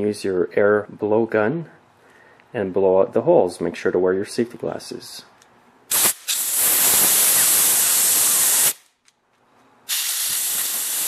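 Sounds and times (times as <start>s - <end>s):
compressed air blow gun hissing: 5.9s - 8.8s, 9.9s - 11.0s.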